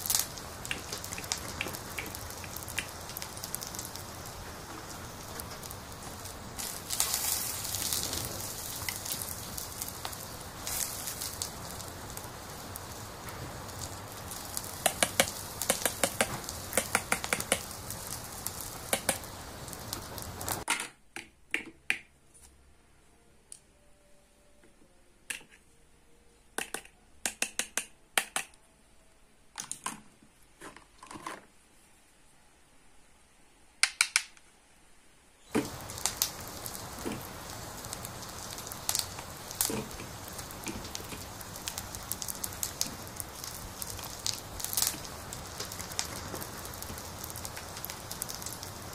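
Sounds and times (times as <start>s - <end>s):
toy stove crackling hiss: 0.0s - 20.7s, 35.4s - 48.9s.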